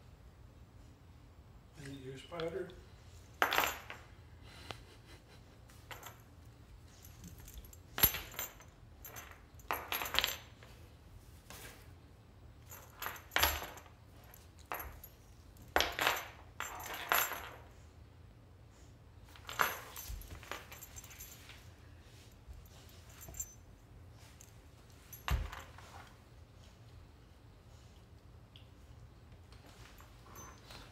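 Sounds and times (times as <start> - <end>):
chain dog collar clinking: 5.8 - 10.7, 12.6 - 17.7, 19.3 - 26.2, 29.7 - 30.9.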